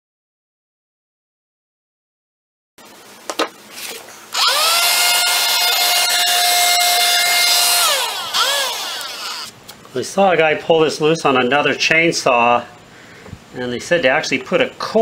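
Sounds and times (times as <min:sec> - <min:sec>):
power tool motor whining: 0:04.3 - 0:09.5.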